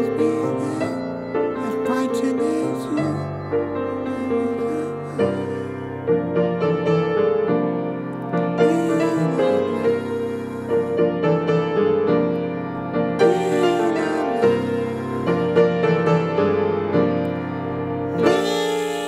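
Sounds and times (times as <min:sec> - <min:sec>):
man singing: 0:00.0 - 0:06.1, 0:08.6 - 0:11.2, 0:13.2 - 0:16.2, 0:18.2 - 0:19.0
grand piano accompaniment: 0:00.0 - 0:19.0.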